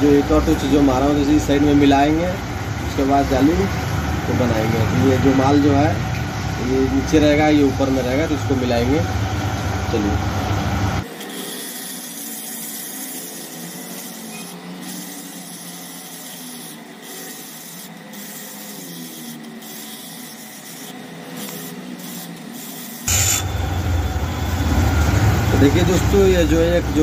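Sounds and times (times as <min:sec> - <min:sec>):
grinding stone grinding steel: 0:00.0 - 0:27.0
loud low rumble: 0:23.1 - 0:27.0.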